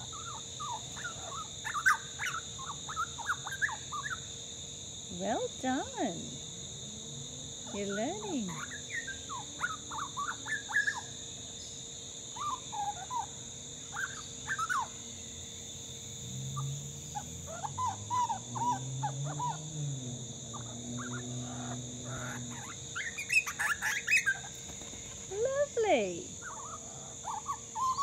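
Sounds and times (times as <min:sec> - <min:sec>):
young bird whistling song: 0:00.0 - 0:04.3, 0:07.7 - 0:13.3, 0:13.9 - 0:15.0, 0:22.2 - 0:24.6, 0:25.3 - 0:28.0.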